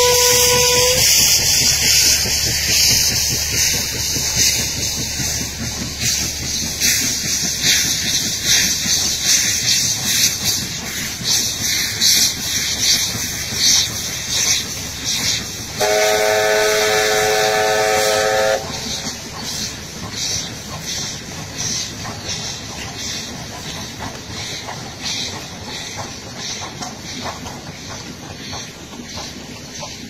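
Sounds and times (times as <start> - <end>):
steam whistle chord: 0.0 - 1.2, 15.8 - 18.7
hiss of steam: 0.0 - 30.0
steam locomotive chuffing: 0.0 - 30.0.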